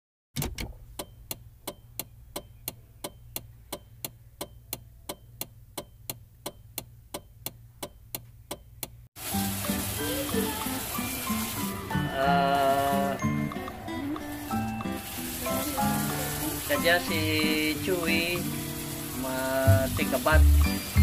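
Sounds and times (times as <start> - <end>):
mechanical ticking: 0.4 - 9.0.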